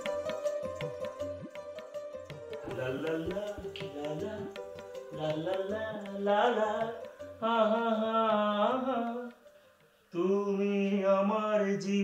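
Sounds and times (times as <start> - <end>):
hand drum beat: 0.0 - 9.4
held melodic line: 0.0 - 9.6
indian-style melody: 0.0 - 12.0.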